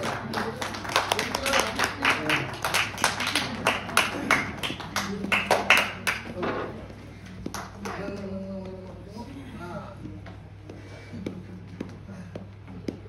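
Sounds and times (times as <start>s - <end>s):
people clapping: 0.0s - 8.3s.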